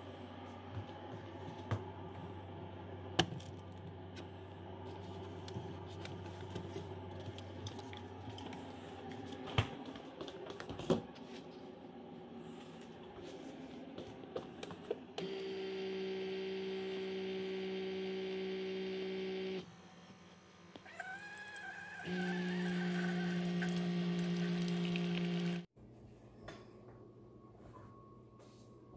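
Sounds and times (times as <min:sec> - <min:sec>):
coffee maker humming: 0:15.2 - 0:25.7.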